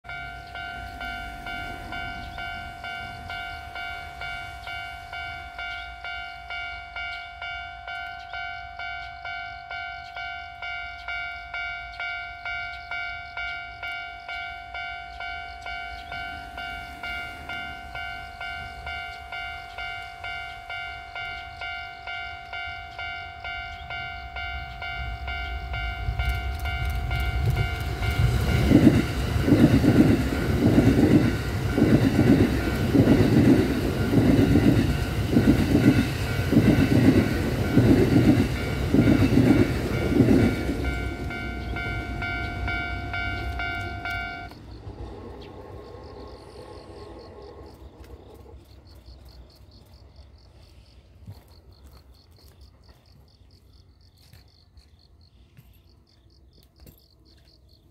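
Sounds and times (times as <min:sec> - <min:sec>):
level crossing alarm bell: 0:00.0 - 0:44.6
train wheels clattering over rail joints: 0:25.7 - 0:53.0.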